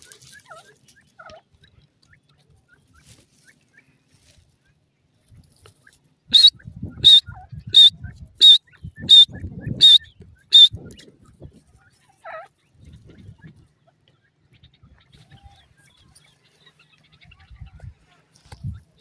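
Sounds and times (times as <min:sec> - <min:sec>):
francolin calling: 0:06.3 - 0:10.7.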